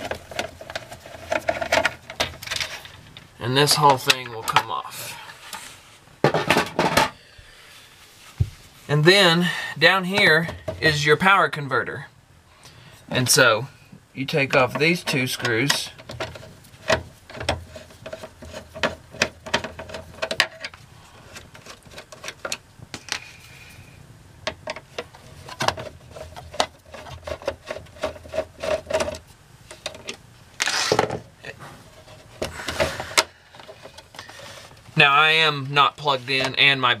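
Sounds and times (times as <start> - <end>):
metal cover scraping: 0.0 - 7.2, 14.5 - 23.8, 24.5 - 36.7.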